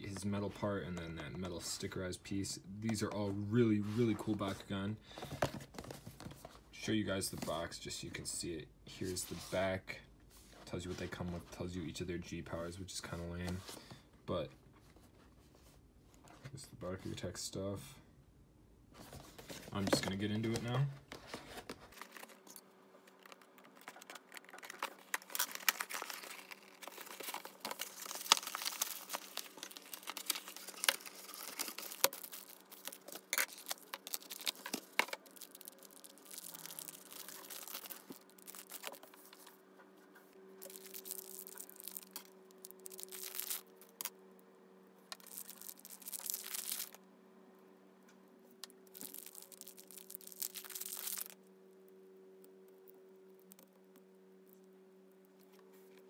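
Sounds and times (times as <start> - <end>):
faint steady hum: 0.0 - 56.0
plastic packaging crinkling and tearing: 19.8 - 39.5, 40.6 - 44.1, 45.1 - 47.0, 48.6 - 51.4.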